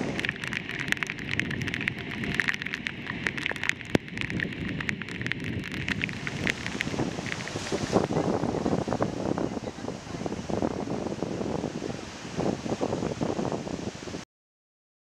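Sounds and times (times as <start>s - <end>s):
raindrops striking microphone: 0.0s - 13.6s
surf: 0.0s - 14.2s
wind: 0.0s - 14.2s.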